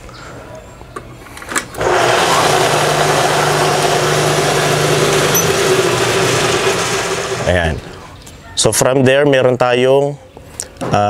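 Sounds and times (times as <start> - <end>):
table saw humming and whirring: 1.8 - 8.0.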